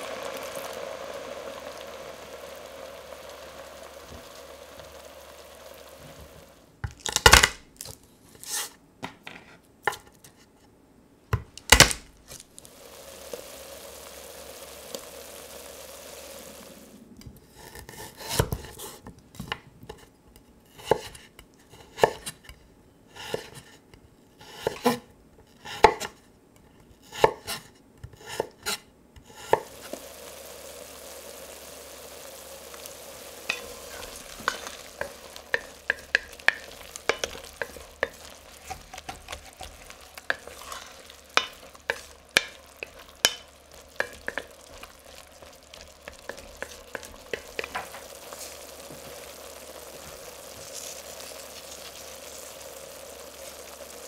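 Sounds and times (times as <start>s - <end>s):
frying sizzle: 0.0s - 8.7s, 11.4s - 19.1s, 29.3s - 54.0s
wooden spoon scraping pot: 33.3s - 52.6s.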